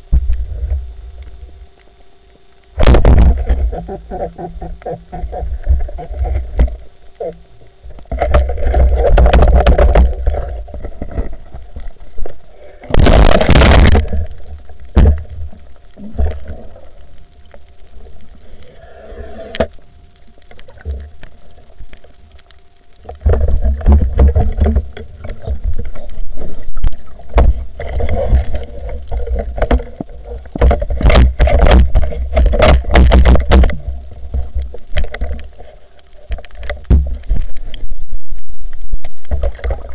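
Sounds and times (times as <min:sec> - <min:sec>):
faint steady hum: 0:00.0 - 0:39.9
underwater water rushing: 0:00.0 - 0:39.9
splash: 0:12.8 - 0:15.4.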